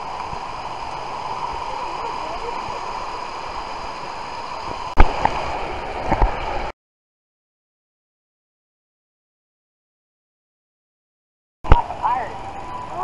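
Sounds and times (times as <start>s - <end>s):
rushing flowing water: 0.0s - 6.7s, 11.7s - 13.0s.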